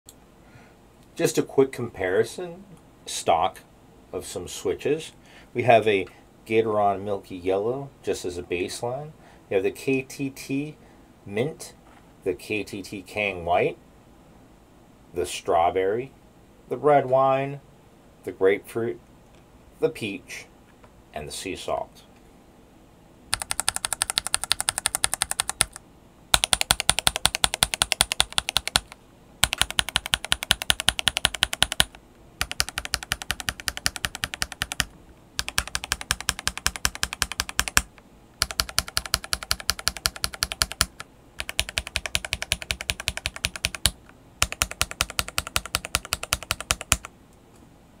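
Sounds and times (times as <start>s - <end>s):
mechanical keyboard switches clacking: 26.4s - 47.1s.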